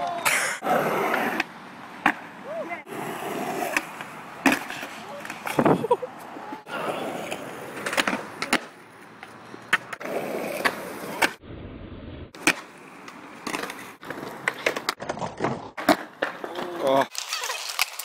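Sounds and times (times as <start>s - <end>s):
skateboard wheels grinding on concrete: 0.0s - 18.0s
skateboard snaps and clacks: 3.6s - 5.7s, 7.3s - 11.4s, 12.4s - 18.0s.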